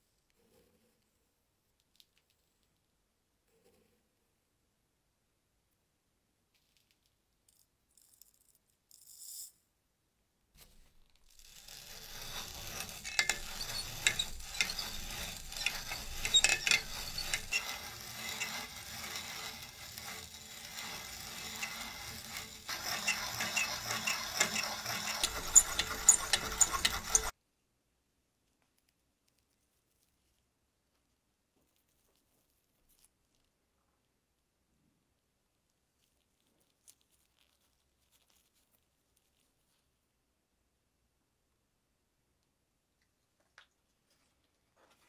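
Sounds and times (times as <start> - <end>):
grinder gears rattling and clicking: 10.9 - 27.3.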